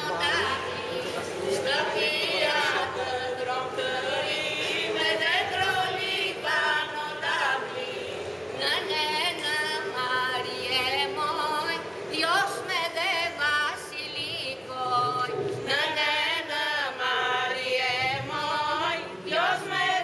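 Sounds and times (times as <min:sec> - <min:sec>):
women singing unaccompanied: 0:00.0 - 0:20.0.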